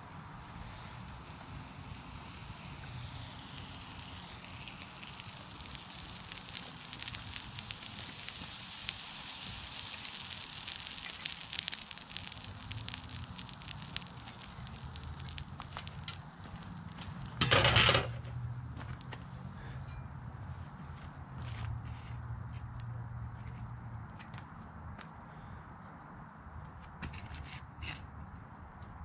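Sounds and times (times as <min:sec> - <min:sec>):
small sharp ticks: 0:00.0 - 0:17.6, 0:21.2 - 0:24.6
molten metal crackling and hissing: 0:00.0 - 0:25.5.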